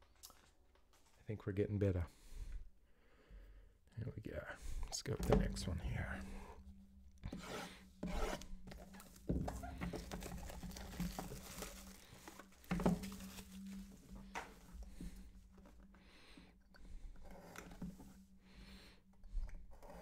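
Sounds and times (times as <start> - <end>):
plastic shrink wrap crinkling: 8.7 - 14.7.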